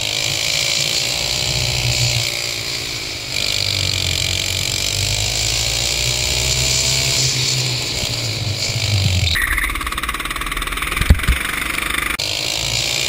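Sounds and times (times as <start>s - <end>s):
go-kart engine revving: 0.0s - 13.0s
wind noise on microphone: 7.7s - 11.8s.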